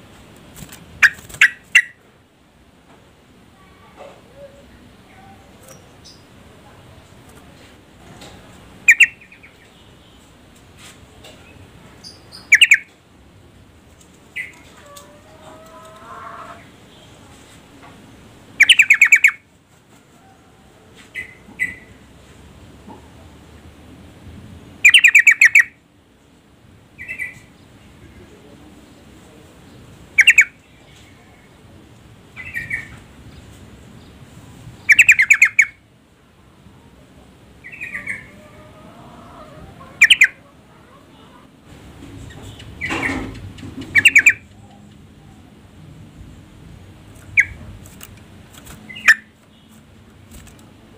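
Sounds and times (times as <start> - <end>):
bird chattering calls: 8.9 - 9.4, 12.0 - 12.8, 18.6 - 19.4, 30.1 - 30.6, 34.9 - 35.7, 39.8 - 41.4, 42.2 - 44.8, 48.9 - 49.3.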